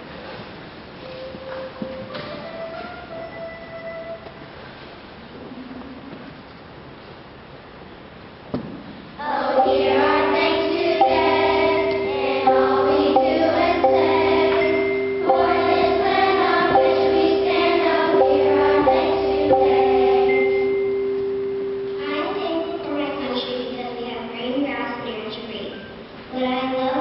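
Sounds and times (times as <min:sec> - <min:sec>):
children's choir singing: 0:09.2 - 0:23.0.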